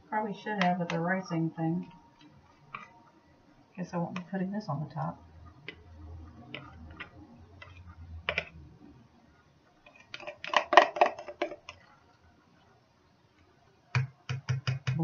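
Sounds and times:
faint low hum: 0.0 - 10.6
plastic pitcher and utensil clicking: 6.5 - 8.6, 9.9 - 11.9.

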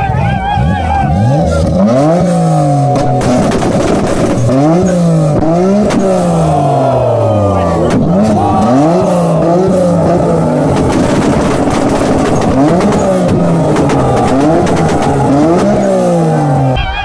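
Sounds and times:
car engine revving on limiter: 0.5 - 16.8
exhaust pops and crackles: 2.8 - 6.4, 7.8 - 16.4.

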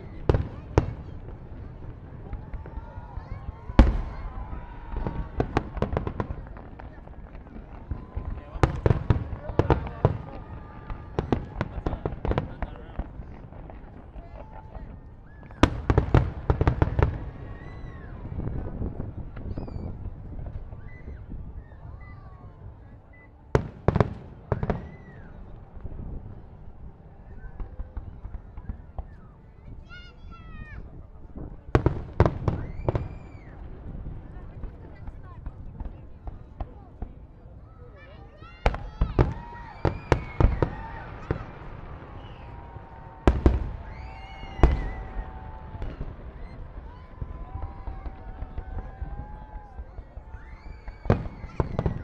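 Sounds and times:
fireworks bangs: 0.0 - 37.3, 38.0 - 52.0.

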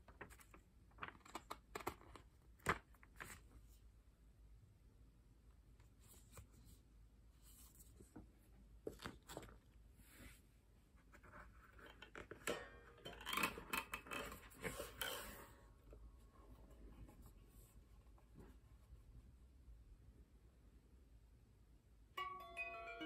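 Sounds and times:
paper rustling: 0.0 - 3.7, 7.4 - 10.4.

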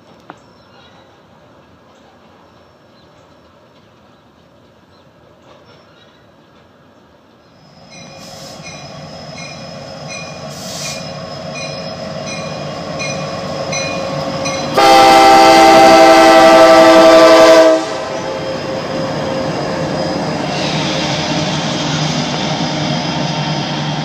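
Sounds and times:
diesel locomotive passing: 6.4 - 24.0
crossing bell dinging: 7.8 - 15.0
train horn blast: 13.9 - 18.7.

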